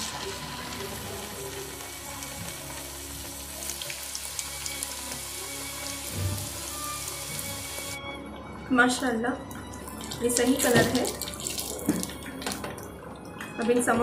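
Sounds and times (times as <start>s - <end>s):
food deep-frying in oil: 0.0s - 8.0s.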